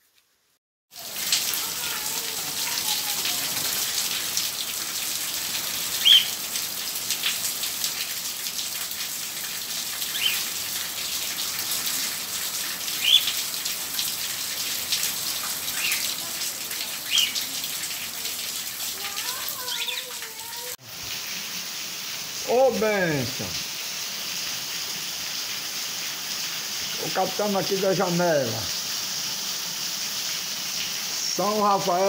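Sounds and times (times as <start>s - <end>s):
rain on stone pavement: 0.0s - 32.0s
bird chirps: 6.0s - 6.4s, 10.1s - 10.5s, 13.0s - 13.4s, 15.8s - 16.1s, 17.1s - 17.4s.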